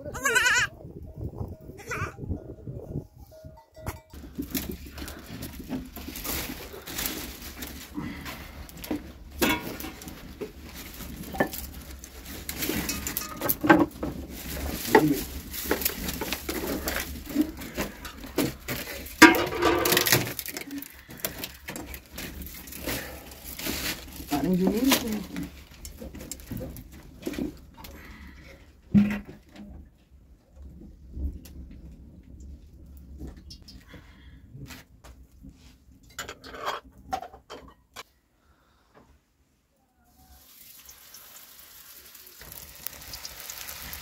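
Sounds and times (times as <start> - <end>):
pans and utensils clattering: 9.4 - 10.4, 11.1 - 23.9.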